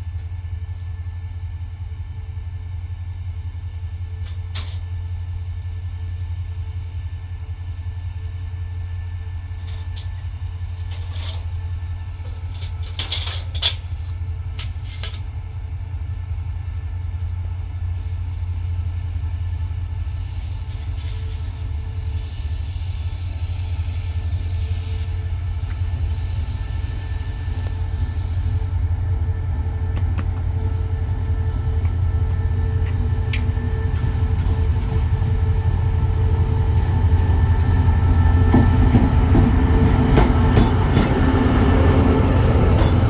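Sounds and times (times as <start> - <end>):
diesel train engine rumble: 0.0 - 43.0
hiss: 17.7 - 30.6.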